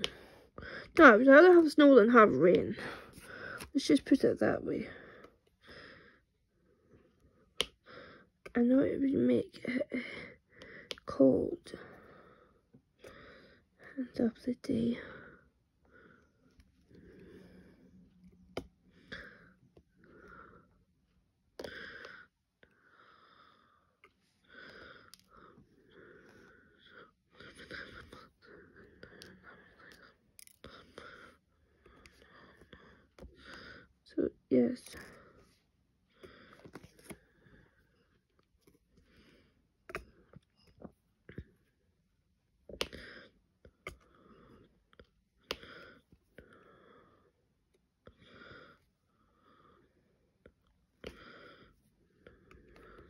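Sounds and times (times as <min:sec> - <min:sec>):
faint clicks and taps of pen: 0:00.0 - 0:00.2, 0:07.6 - 0:07.8, 0:10.6 - 0:11.1, 0:39.9 - 0:41.6, 0:42.7 - 0:43.1, 0:45.0 - 0:46.2.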